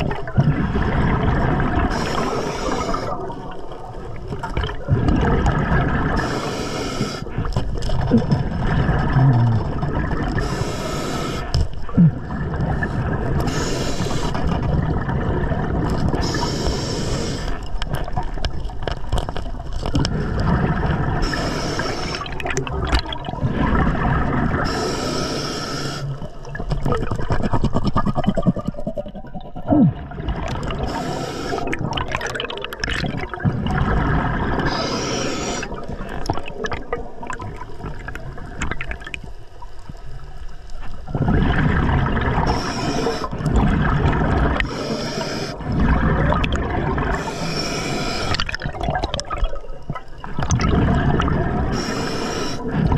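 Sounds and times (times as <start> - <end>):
low water rumble: 0.0 - 25.2, 26.0 - 52.9
exhaled bubbles underwater: 0.0 - 52.9.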